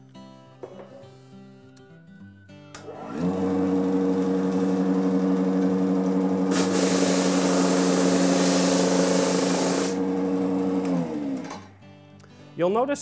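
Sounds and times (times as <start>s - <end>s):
electric motor humming: 2.9s - 11.7s
drum sander sanding plywood: 3.3s - 11.4s.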